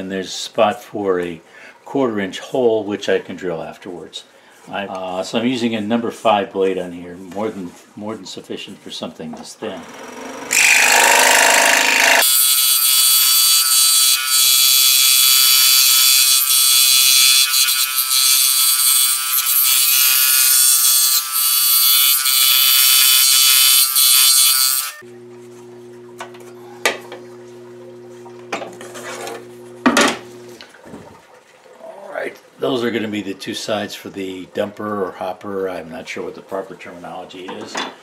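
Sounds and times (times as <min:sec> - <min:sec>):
scroll saw buzzing: 0:09.8 - 0:25.0
low steady hum: 0:25.0 - 0:33.4.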